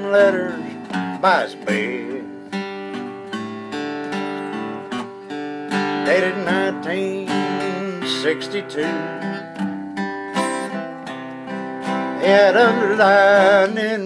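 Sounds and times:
man singing: 0.0s - 2.5s, 5.8s - 9.7s, 12.0s - 14.0s
acoustic guitar strumming: 0.0s - 14.0s.

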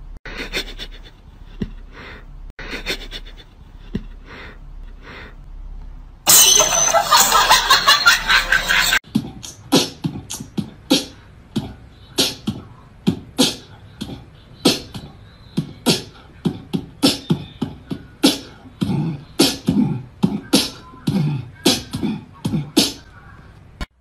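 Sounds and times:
beatbox clicks and thumps: 9.1s - 23.0s.

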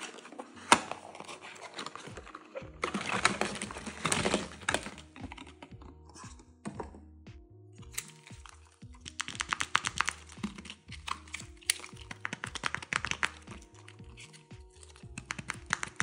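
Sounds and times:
soft background music: 0.0s - 16.0s
fingernails tapping plastic shells: 9.0s - 14.4s, 15.0s - 16.0s.

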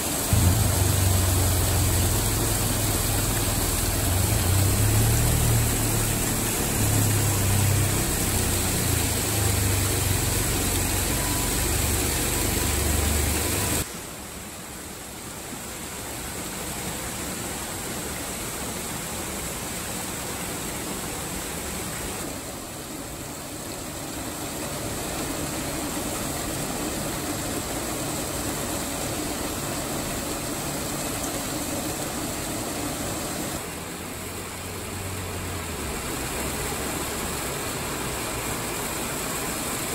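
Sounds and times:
water pouring over rocks: 0.0s - 39.9s
low rumble: 0.3s - 6.2s.

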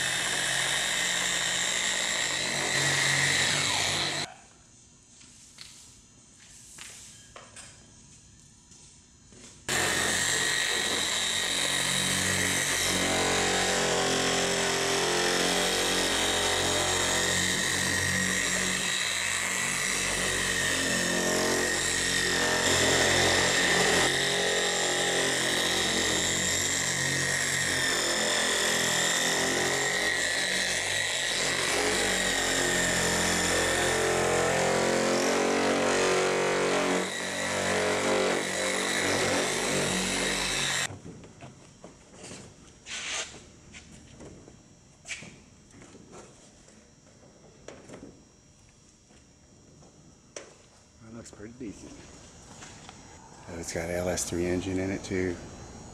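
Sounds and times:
electric polisher whining: 2.6s - 4.3s.

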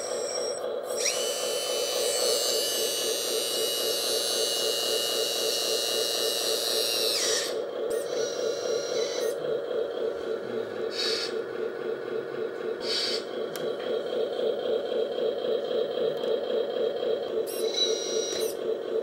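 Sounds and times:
hydraulic pump pulsing hum: 0.0s - 19.0s.

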